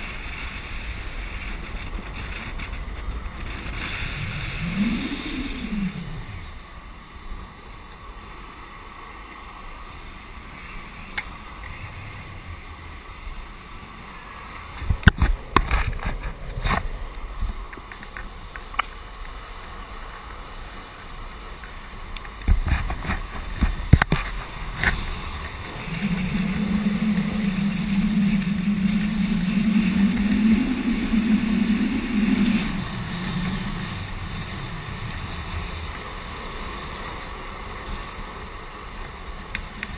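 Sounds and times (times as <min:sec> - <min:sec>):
steady low hum: 0:00.0 - 0:08.2, 0:22.8 - 0:37.3
wind buffeting microphone: 0:00.0 - 0:08.3, 0:21.9 - 0:39.9
longboard wheels rolling on asphalt: 0:00.0 - 0:39.9.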